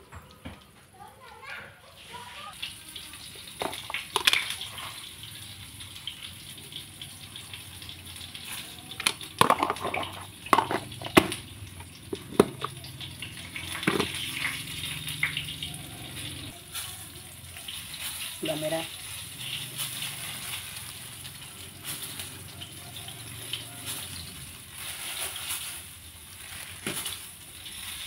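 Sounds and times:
hands handling ingredients at mortar: 0:03.6 - 0:04.5, 0:08.9 - 0:13.0, 0:13.7 - 0:14.3.

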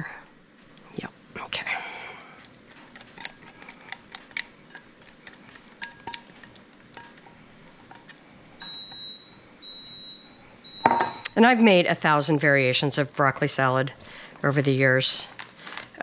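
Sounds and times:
high steady beep: 0:08.6 - 0:11.3
metal taps and clinks: 0:10.8 - 0:11.2.

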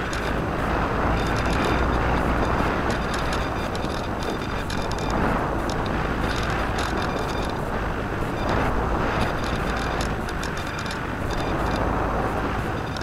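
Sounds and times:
electric motor and propeller: 0:00.0 - 0:13.0
wind rush over microphone: 0:00.0 - 0:13.0.

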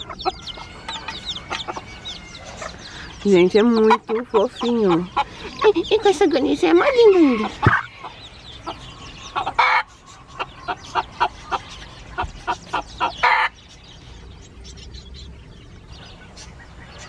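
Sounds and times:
hen clucking: 0:00.0 - 0:13.8
chicks peeping faintly: 0:00.0 - 0:17.0.

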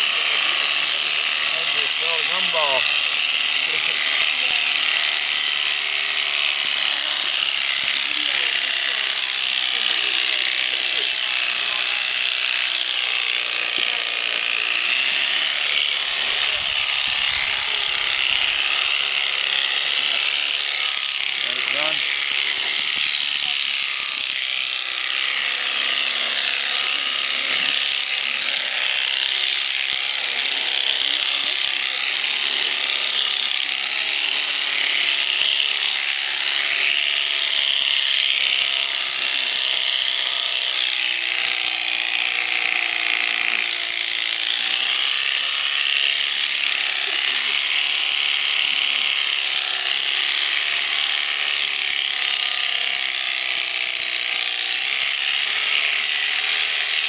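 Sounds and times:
electric shears buzzing: 0:00.0 - 0:57.0.

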